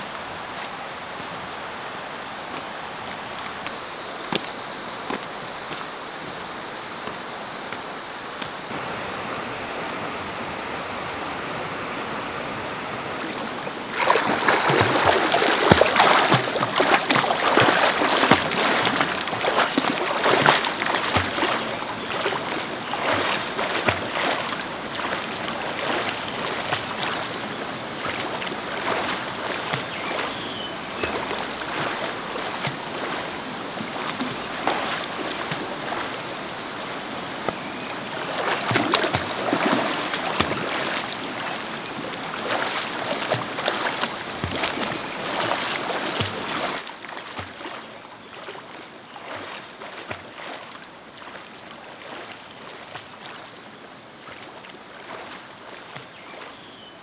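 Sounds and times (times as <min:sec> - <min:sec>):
stream running over rocks: 0:00.0 - 0:57.0
splashing in water: 0:13.2 - 0:57.0.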